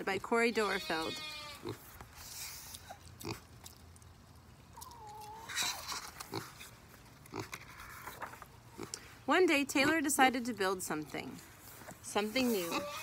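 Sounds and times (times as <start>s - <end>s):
faint farm animal call: 0.4s - 1.8s, 4.7s - 6.5s, 12.4s - 13.0s
book pages turning: 7.5s - 8.6s.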